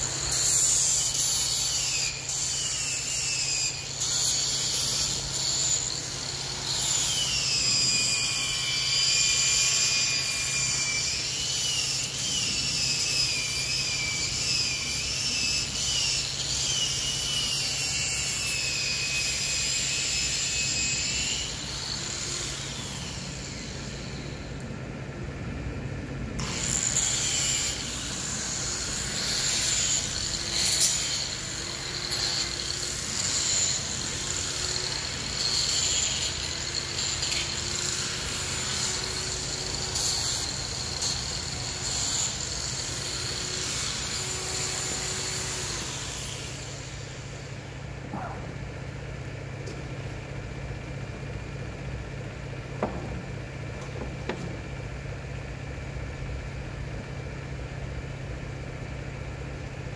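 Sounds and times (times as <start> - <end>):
angle grinder sanding wood: 0.0 - 24.6, 26.4 - 47.6.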